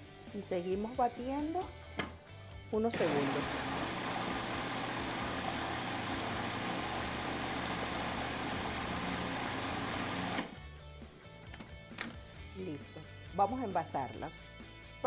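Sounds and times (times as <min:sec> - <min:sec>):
electric food processor blending: 0:03.0 - 0:10.6.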